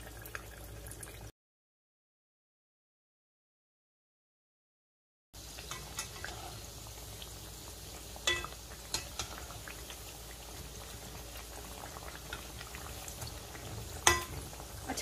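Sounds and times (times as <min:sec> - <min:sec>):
food deep-frying in oil: 0:00.0 - 0:01.3, 0:05.4 - 0:15.0
metal spatula clinking on pan: 0:05.7 - 0:06.3, 0:08.2 - 0:09.4, 0:14.0 - 0:14.5.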